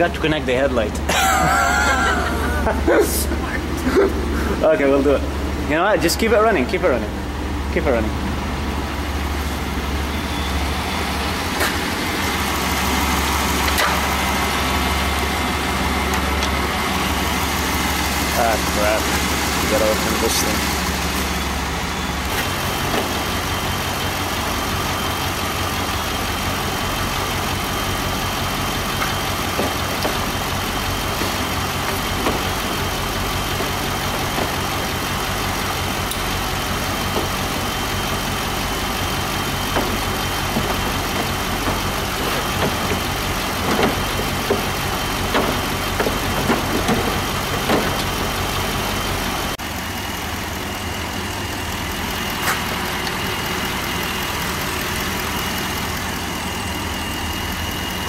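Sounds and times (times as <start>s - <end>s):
high whine: 0.0s - 45.7s
car engine idling: 0.0s - 58.0s.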